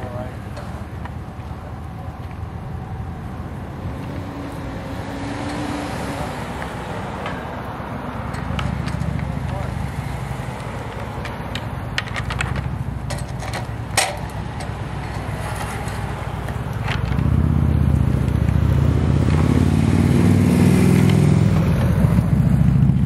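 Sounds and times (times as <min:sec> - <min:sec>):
vehicle engine running: 0:00.6 - 0:23.0
antlers clacking together: 0:08.3 - 0:17.2.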